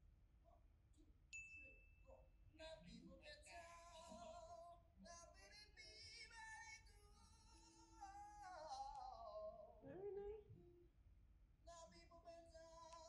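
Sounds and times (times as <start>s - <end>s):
man singing: 2.6s - 10.4s, 11.7s - 13.0s.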